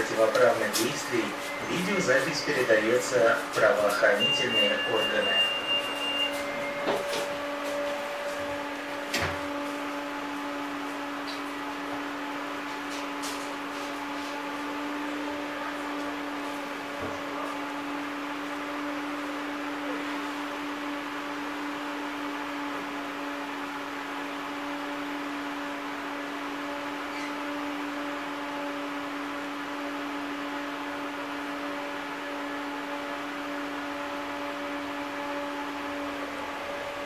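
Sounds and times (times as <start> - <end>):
ventilation hiss: 0.0 - 27.0
low electrical hum: 0.0 - 37.0.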